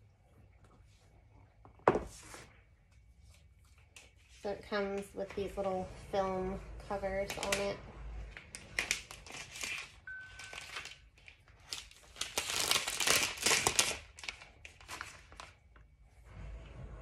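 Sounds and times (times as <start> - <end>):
plastic film peeling and crinkling: 8.4 - 15.9.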